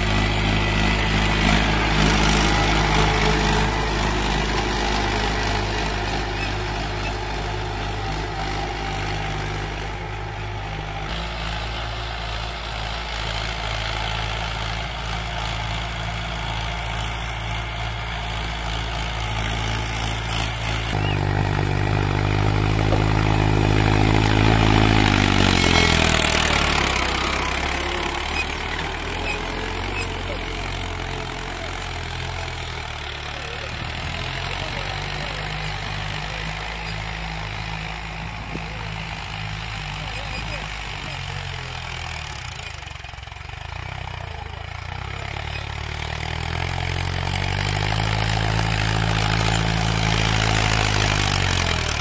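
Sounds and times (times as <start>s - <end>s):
tractor diesel engine under load: 0.0s - 52.0s.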